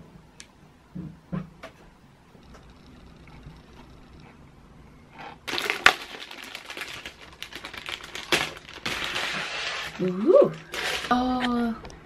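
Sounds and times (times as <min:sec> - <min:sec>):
plastic wrapping crinkling: 0:05.5 - 0:11.6.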